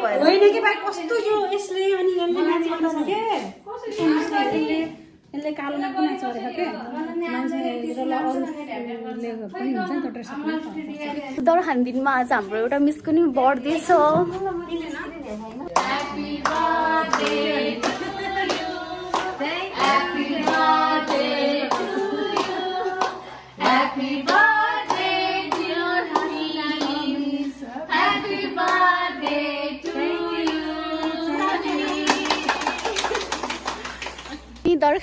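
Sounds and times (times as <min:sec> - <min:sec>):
hands clapping in a beat: 0:15.7 - 0:27.1, 0:28.6 - 0:34.6
group of adults singing: 0:15.7 - 0:33.4.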